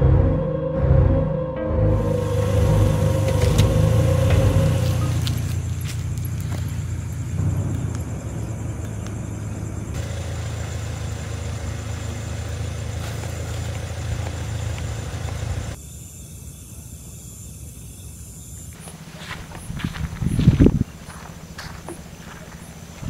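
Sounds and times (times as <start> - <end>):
car engine idling: 2.0 - 15.8, 18.8 - 23.0.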